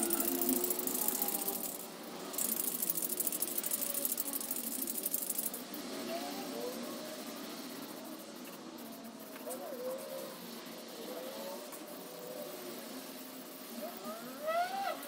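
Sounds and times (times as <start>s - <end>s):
spray can rattling: 0.0s - 5.8s.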